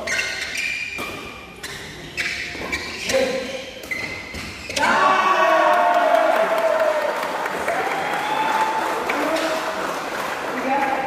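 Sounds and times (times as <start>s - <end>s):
shoes squeaking on court: 0.0s - 5.0s
racket hitting shuttlecock: 0.3s - 5.0s
spectators cheering and clapping: 5.0s - 11.0s.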